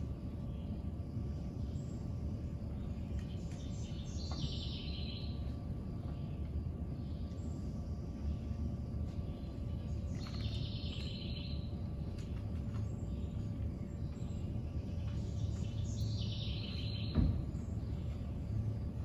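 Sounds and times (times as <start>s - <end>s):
birds chirping: 0.0s - 19.0s
low room hum: 0.0s - 19.0s
low thump: 17.1s - 17.6s.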